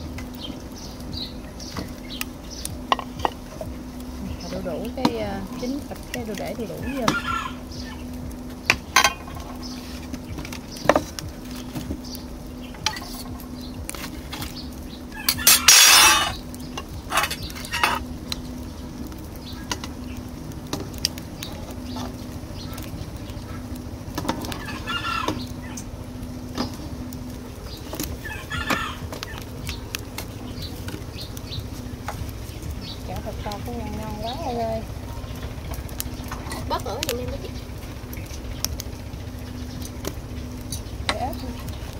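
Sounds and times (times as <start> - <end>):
chickens clucking: 4.3 - 11.3, 21.0 - 26.0, 27.6 - 34.3
rooster crowing: 6.8 - 8.1, 15.1 - 16.4, 24.5 - 25.8, 28.2 - 29.6
metal ladle scraping in pot: 15.3 - 16.4, 17.1 - 18.0.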